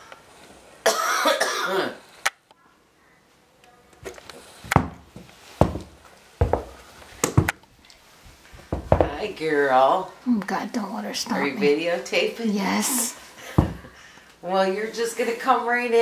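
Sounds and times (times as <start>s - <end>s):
horse hooves on wooden deck: 4.7s - 7.6s, 8.6s - 9.3s, 13.6s - 13.9s.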